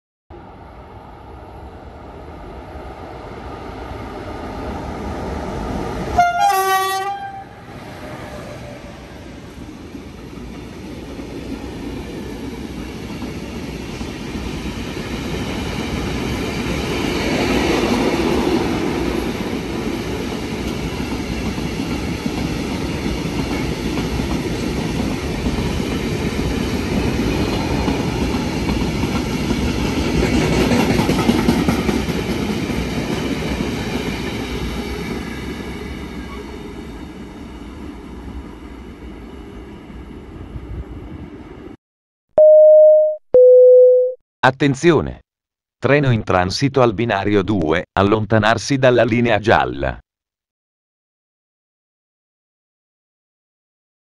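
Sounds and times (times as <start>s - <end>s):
train passing: 0.4s - 41.8s.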